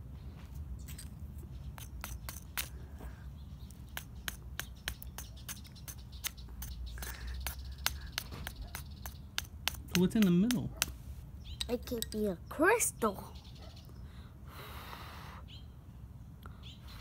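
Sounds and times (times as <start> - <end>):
small hammer tapping block: 7.4 - 10.9.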